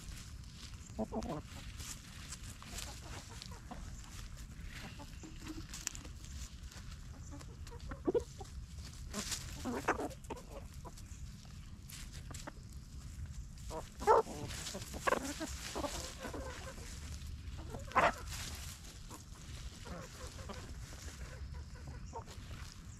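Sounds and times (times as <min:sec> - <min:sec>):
chickens clucking: 0:00.0 - 0:22.9
scratching in dry leaves: 0:00.0 - 0:22.9.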